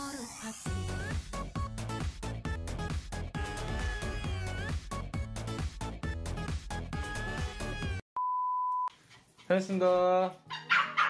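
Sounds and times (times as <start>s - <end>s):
upbeat background music: 0.0s - 8.0s.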